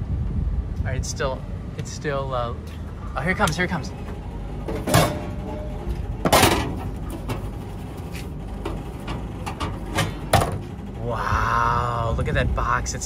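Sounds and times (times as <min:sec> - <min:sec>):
vending machine flap clunking: 0:03.4 - 0:10.9.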